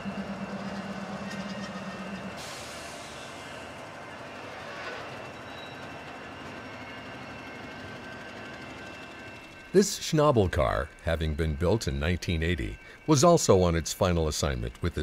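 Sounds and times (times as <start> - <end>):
low pulsing hum: 0.0 - 2.4
falling squeal: 0.0 - 7.6
train wheels on rails: 0.0 - 15.0.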